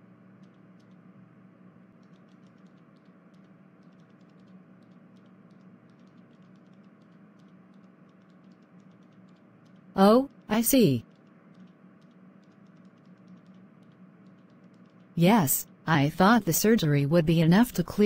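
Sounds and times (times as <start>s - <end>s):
faint low hum: 0.0s - 18.0s
soft irregular clicking: 0.3s - 1.1s, 1.9s - 15.2s.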